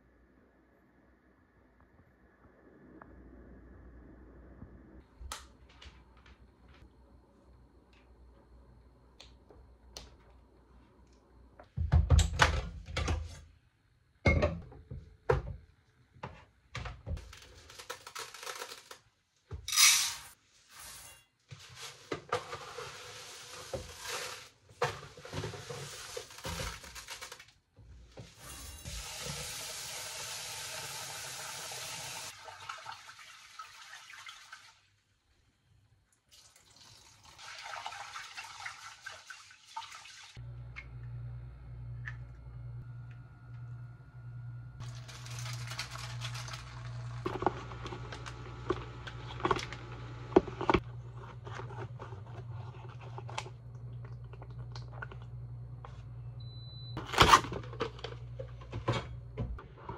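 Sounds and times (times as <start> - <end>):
tap water running into pot: 36.3 - 40.3
rice pouring into a pot: 44.8 - 47.4.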